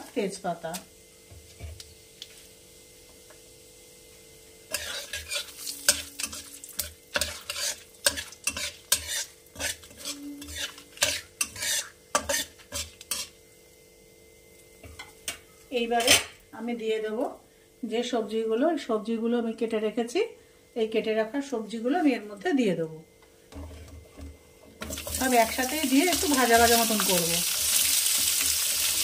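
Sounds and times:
spices sizzling in oil: 0.0s - 16.7s, 23.6s - 29.0s
metal spatula scraping a pan: 4.7s - 13.4s.

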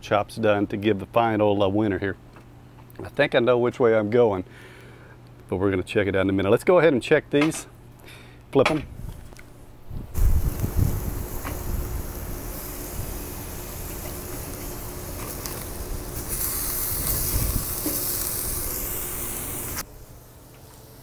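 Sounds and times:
meat sizzling on a grill: 10.2s - 21.0s.

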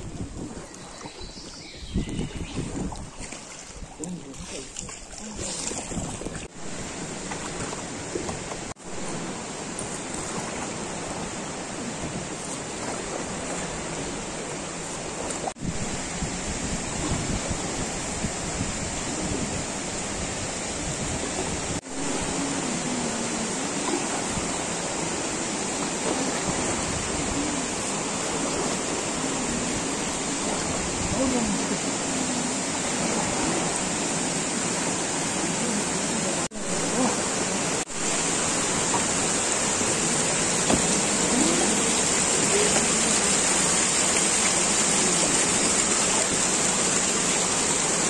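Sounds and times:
wind on microphone: 0.0s - 8.7s, 15.1s - 34.5s
water rushing in river: 0.0s - 48.0s
small waterfalls pouring: 2.5s - 48.0s.

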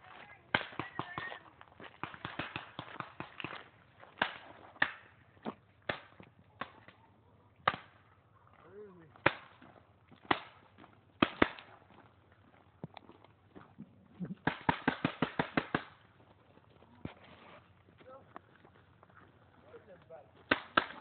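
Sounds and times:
paintball marker shots popping: 0.5s - 1.4s, 2.0s - 5.1s, 5.8s - 7.0s, 7.6s - 8.0s, 9.2s - 9.6s, 10.2s - 10.6s, 11.2s - 11.8s, 14.4s - 16.0s, 20.4s - 21.0s.

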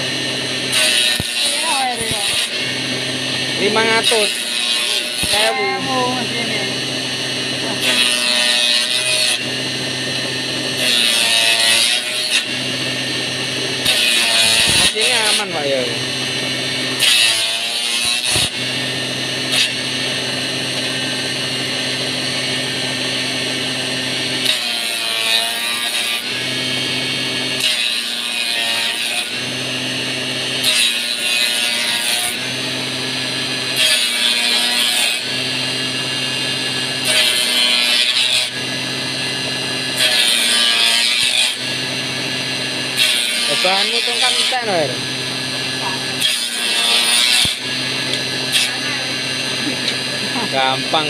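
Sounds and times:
electric motor humming: 0.0s - 51.0s
rough wood cutting noise: 0.0s - 51.0s.

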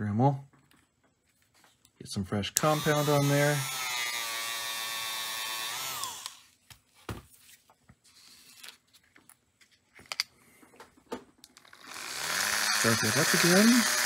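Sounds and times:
rotary tool whining: 2.6s - 6.6s, 11.6s - 14.0s.

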